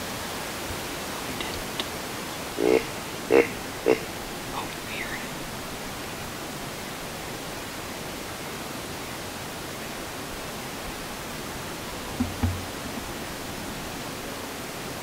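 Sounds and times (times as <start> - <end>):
steady background hiss: 0.0 - 15.0
low thump: 12.2 - 13.2.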